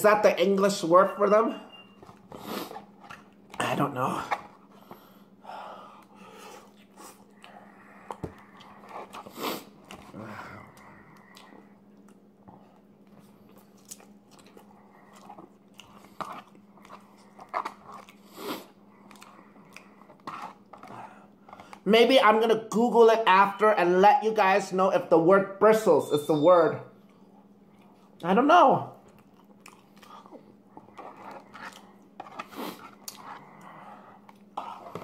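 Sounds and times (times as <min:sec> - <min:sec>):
faint low hum: 0:00.0 - 0:35.0
man chewing: 0:01.9 - 0:03.6, 0:04.3 - 0:21.8, 0:27.0 - 0:28.2, 0:28.9 - 0:35.0.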